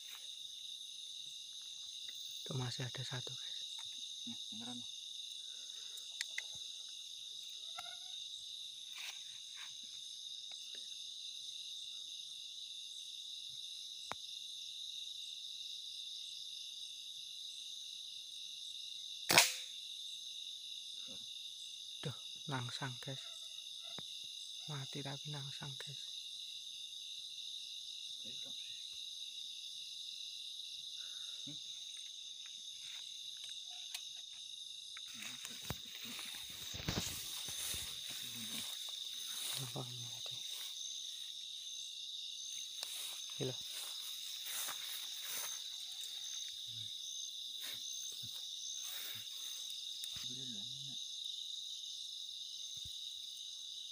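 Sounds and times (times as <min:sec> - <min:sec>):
chorus of night insects: 0:00.0 - 0:53.9
crickets trilling: 0:00.0 - 0:53.9
sharp knock: 0:19.3 - 0:19.7.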